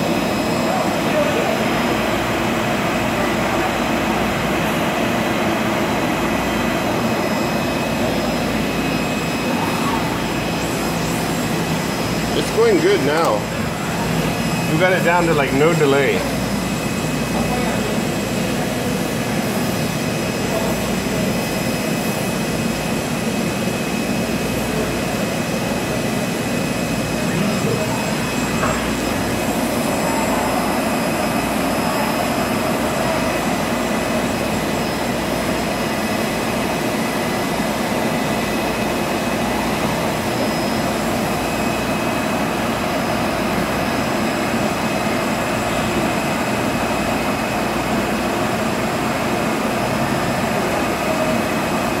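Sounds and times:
machine hum and hiss: 0.0 - 52.0
faint high whines: 23.2 - 48.4.

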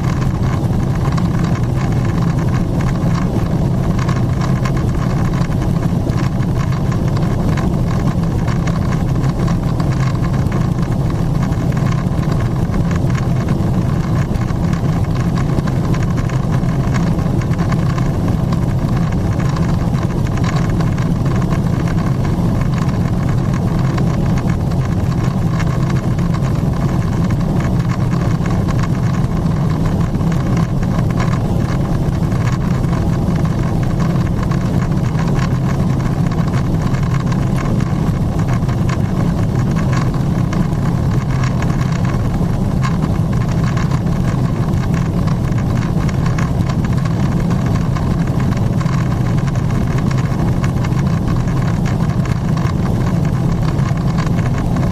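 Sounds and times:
jet engine rumble: 0.0 - 54.9.

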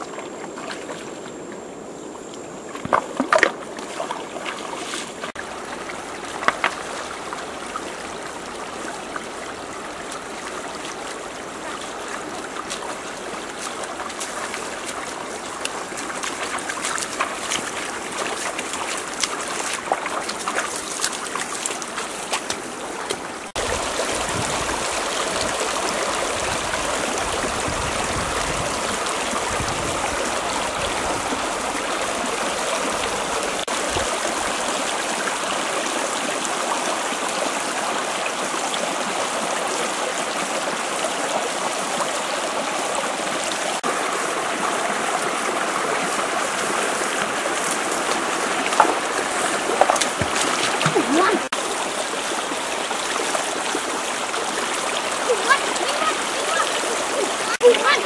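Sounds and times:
stream rushing over rocks: 0.0 - 58.0
loud splashes in water: 48.0 - 51.6.

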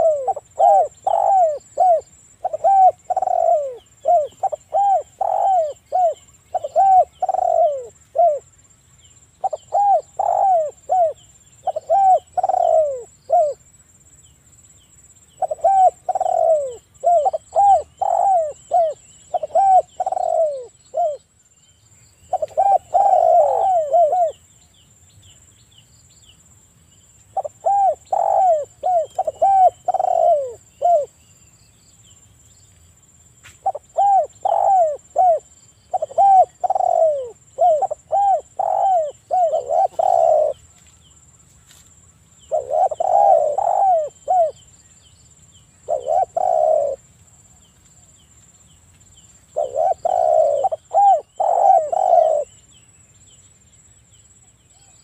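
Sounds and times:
dove cooing: 0.0 - 8.5, 9.4 - 13.6, 15.4 - 21.2, 22.3 - 24.4, 27.3 - 31.2, 33.6 - 40.7, 42.5 - 44.6, 45.8 - 47.0, 49.5 - 52.6.

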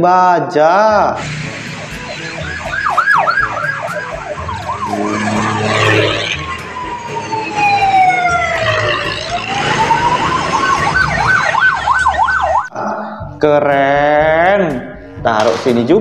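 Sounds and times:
electronic siren yelp and wail: 1.2 - 12.7.

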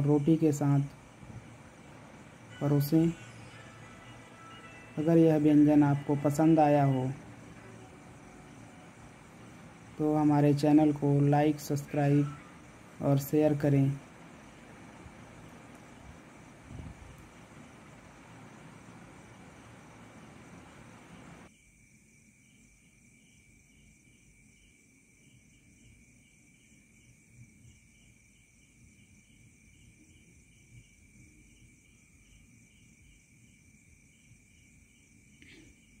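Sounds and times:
faint background hiss: 0.0 - 36.0
high pulsing chirp: 2.2 - 9.9.

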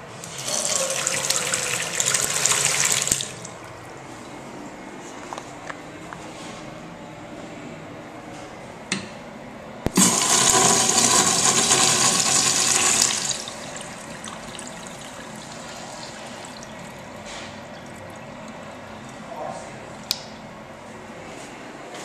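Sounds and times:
urinal water rushing: 9.9 - 20.2.

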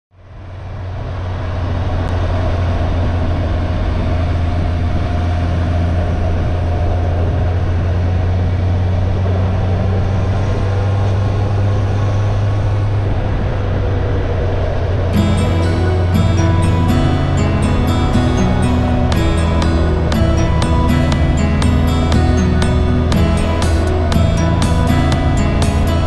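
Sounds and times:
motorcycle engine drone: 0.2 - 26.0
wind rushing over microphone: 0.3 - 15.2.

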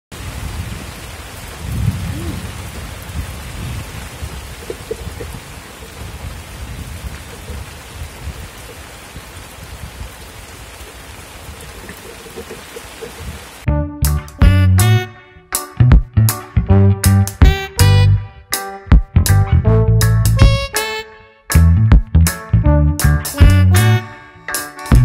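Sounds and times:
rain falling on water: 0.1 - 13.7.

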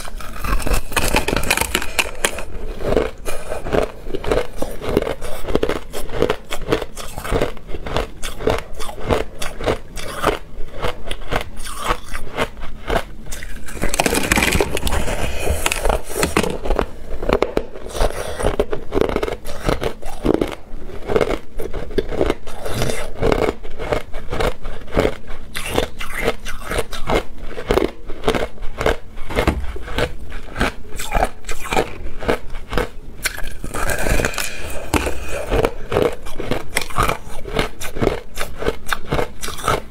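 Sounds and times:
teeth crunching ice: 0.0 - 39.9.

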